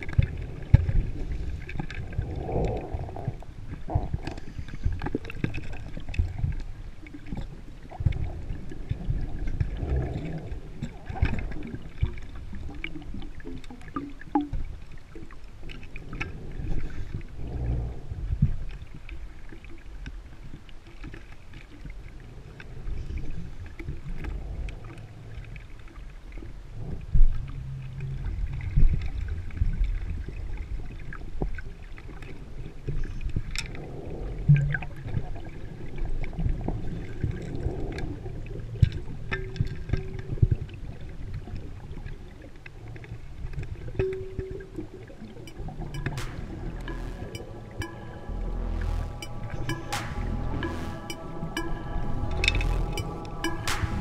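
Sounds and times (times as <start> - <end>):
low underwater rumble: 44.0 - 54.0.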